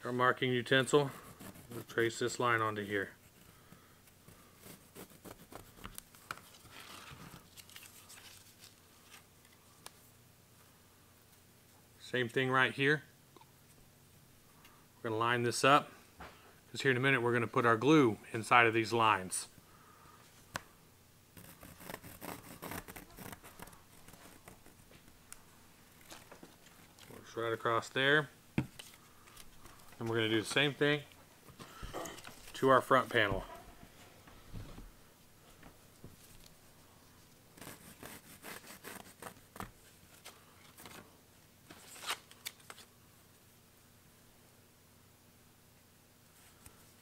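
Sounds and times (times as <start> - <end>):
pencil scratching on leather: 1.1 - 1.9, 4.6 - 5.9, 21.4 - 24.8, 37.6 - 39.5
pencil scratching on paper: 1.1 - 1.9
paper rustling: 4.6 - 9.6, 21.4 - 25.2, 25.8 - 27.3, 31.7 - 33.5, 37.6 - 41.1.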